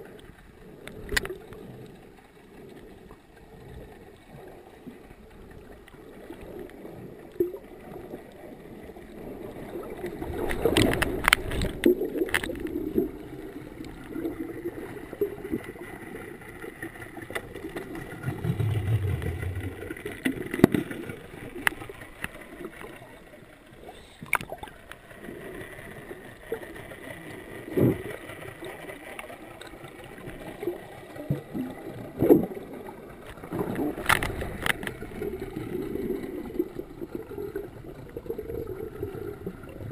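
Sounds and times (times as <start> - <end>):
water gurgling underwater: 0.0 - 39.9
low rumble: 18.2 - 20.1.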